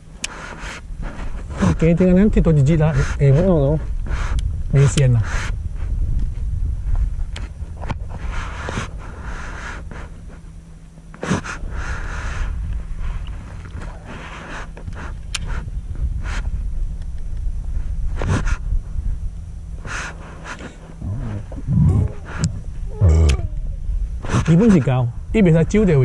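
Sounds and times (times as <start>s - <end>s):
low hum: 0.0s - 26.0s
wind rumble: 0.8s - 10.8s, 11.6s - 26.0s
breathing-like noise: 11.3s - 13.3s, 19.8s - 23.6s.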